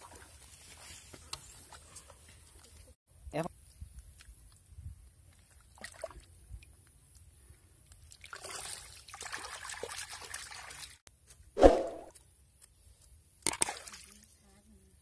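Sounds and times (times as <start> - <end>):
muddy water trickling and sloshing: 3.6 - 11.1, 13.4 - 14.7.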